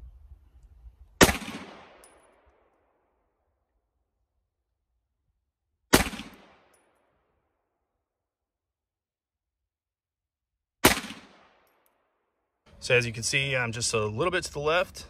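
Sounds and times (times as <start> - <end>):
pistol shots with echo: 1.2 - 2.7, 5.9 - 7.0, 10.8 - 11.7.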